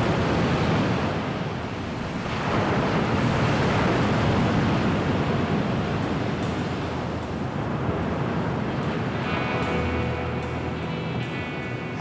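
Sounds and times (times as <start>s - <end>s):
ocean waves crashing: 0.0s - 12.0s.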